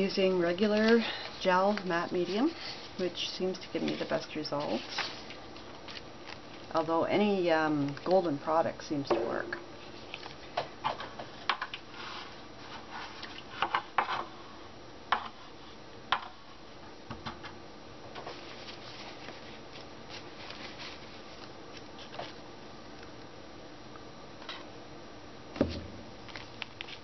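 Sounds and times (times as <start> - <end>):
soft rustling: 0.2 - 7.0, 18.2 - 22.4.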